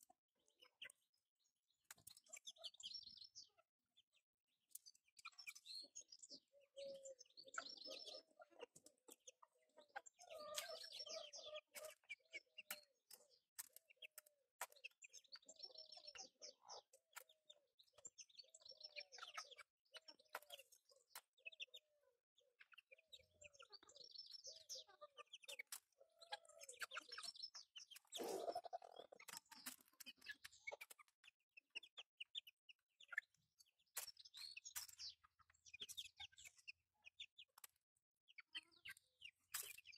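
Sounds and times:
chickens clucking and chirping: 0:00.0 - 0:01.2, 0:01.8 - 0:39.9
beaks pecking grain: 0:25.2 - 0:31.1.

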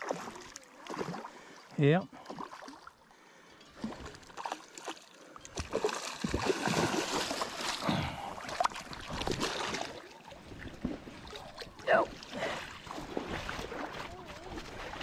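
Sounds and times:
fish splashing in water: 0:03.8 - 0:15.0.

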